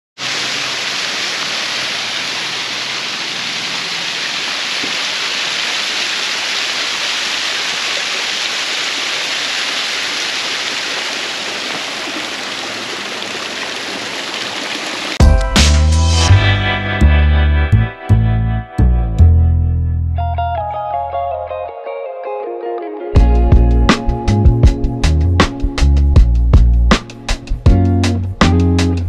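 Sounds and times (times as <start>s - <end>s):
small waterfall rushing: 0.2s - 15.2s.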